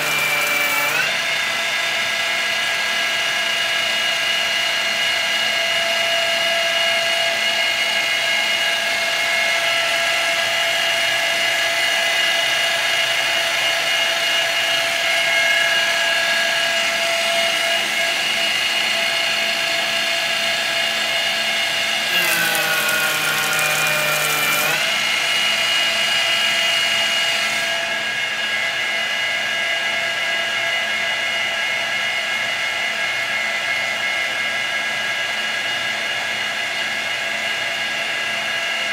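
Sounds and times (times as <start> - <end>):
harsh cutting rasp: 0.0 - 1.2, 22.0 - 25.2
milling spindle whine: 22.0 - 25.4.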